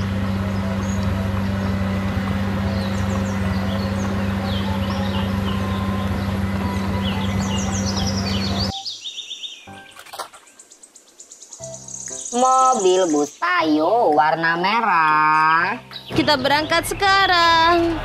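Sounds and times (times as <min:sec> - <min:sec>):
bulldozer diesel engine running: 0:00.0 - 0:08.7, 0:16.1 - 0:18.0
birds chirping: 0:00.0 - 0:18.0.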